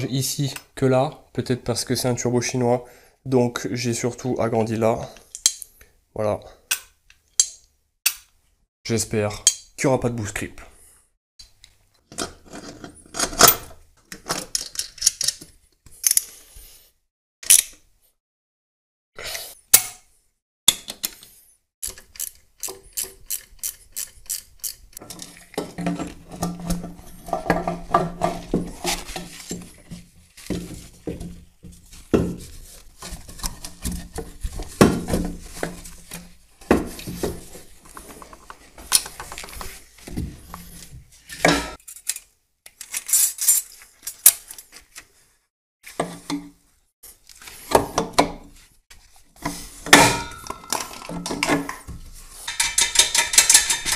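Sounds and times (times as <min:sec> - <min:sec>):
metal tools clinking and knocking: 0:50.0 - 0:51.9, 0:52.5 - 0:53.9.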